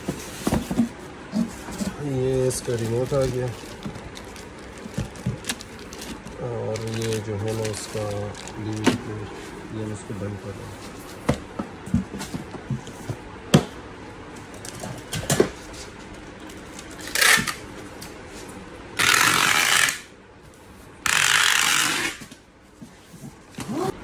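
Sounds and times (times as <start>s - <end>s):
packing tape pulled from dispenser: 17.0s - 17.6s, 19.0s - 20.1s, 21.0s - 22.3s.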